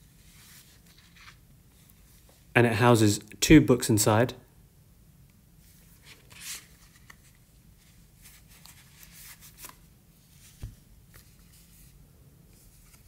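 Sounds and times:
cotton gloves rustling on paper: 5.7 - 13.0.

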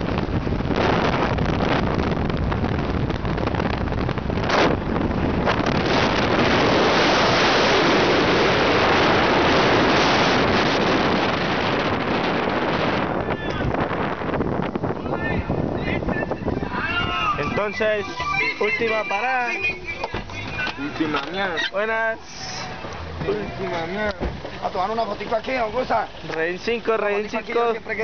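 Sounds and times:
wind buffeting microphone: 0.0 - 18.1.

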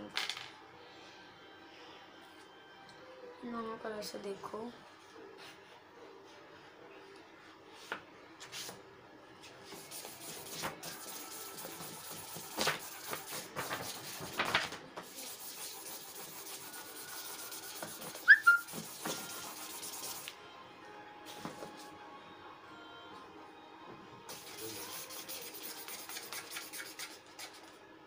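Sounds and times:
pen scratching on paper: 15.0 - 20.3, 24.3 - 27.6
pen squeak: 18.2 - 19.3.

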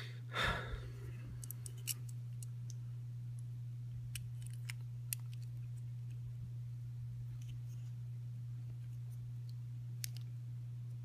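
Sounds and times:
short breath: 0.0 - 1.0
steady low hum: 0.0 - 11.0.

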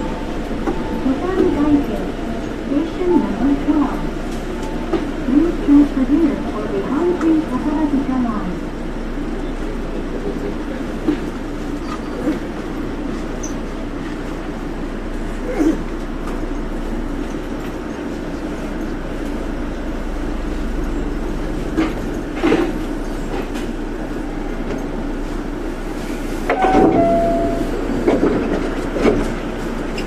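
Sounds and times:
monorail train rumbling: 0.0 - 30.0
short held tone: 26.5 - 27.9.

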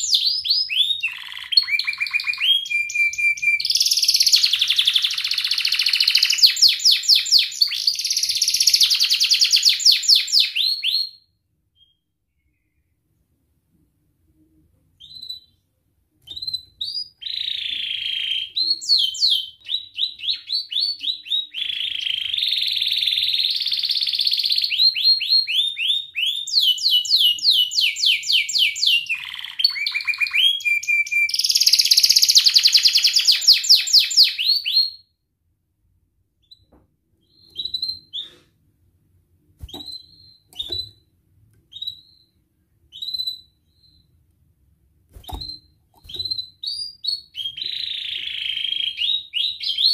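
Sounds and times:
canary singing trills: 0.0 - 11.1, 16.2 - 35.0, 39.6 - 41.1
bird chirps: 0.0 - 11.2, 16.3 - 35.0, 36.4 - 38.4, 39.6 - 41.1, 41.7 - 44.2, 45.2 - 49.9.

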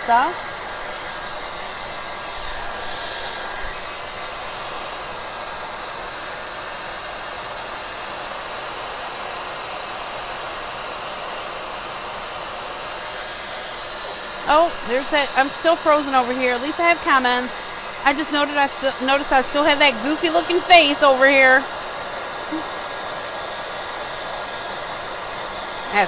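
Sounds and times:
hair dryer blowing: 0.0 - 26.0.

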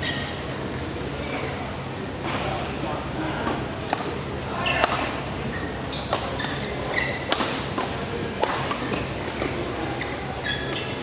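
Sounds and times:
shoes squeaking on court: 5.5 - 7.4, 10.0 - 11.0
racket striking shuttlecock: 7.3 - 9.0.

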